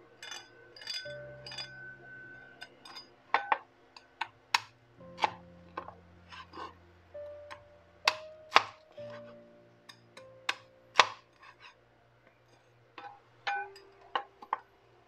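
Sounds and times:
knife chopping crispy pork: 8.0 - 9.2.

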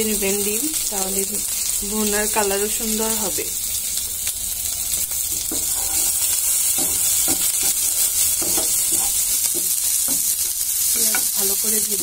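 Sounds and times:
onions sizzling in hot oil: 0.0 - 12.0
spoon scraping frying pan: 4.6 - 11.4.

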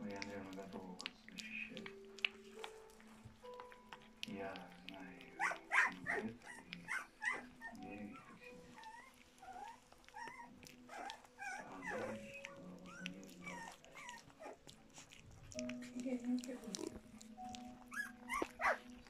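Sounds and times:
puppy lapping food: 0.0 - 19.0
puppy squeaking and whimpering: 5.3 - 19.0.

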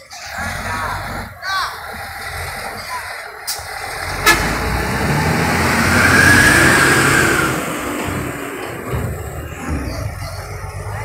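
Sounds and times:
heavy truck engine running: 0.0 - 11.0
motorcycle passing by: 4.0 - 8.3.

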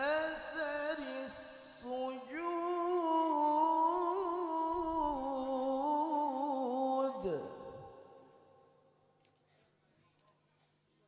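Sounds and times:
man chanting melodically: 0.0 - 8.4.

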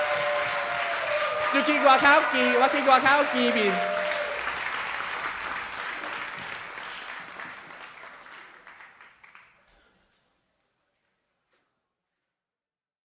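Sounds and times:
applause: 0.0 - 10.0.

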